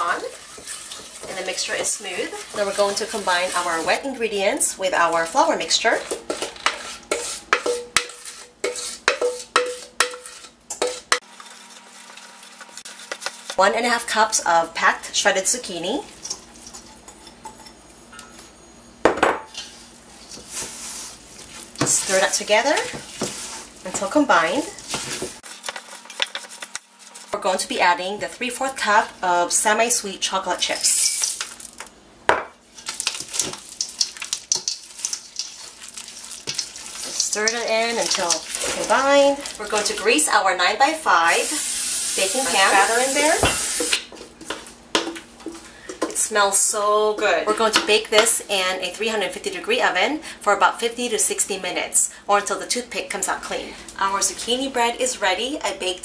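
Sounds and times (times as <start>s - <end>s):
spatula scraping metal mixing bowl: 0.0s - 4.4s, 5.9s - 13.6s, 32.8s - 40.3s
utensil clinking metal bowl: 32.8s - 40.2s.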